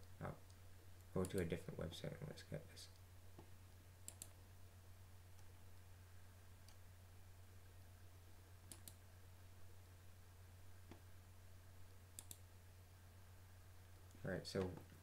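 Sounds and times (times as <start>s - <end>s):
low steady hum: 0.0s - 15.0s
computer mouse clicks: 0.4s - 1.5s, 2.9s - 4.4s, 8.7s - 9.0s, 12.2s - 12.4s.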